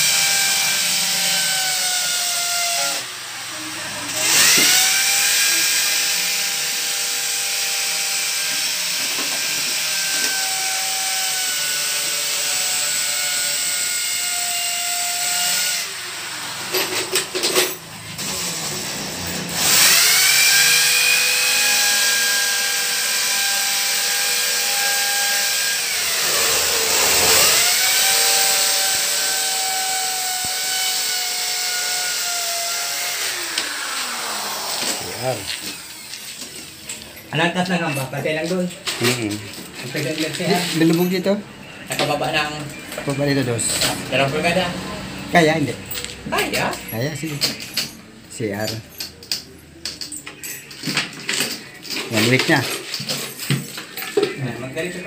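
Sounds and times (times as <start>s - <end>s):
power tool motor running: 0.0s - 38.1s.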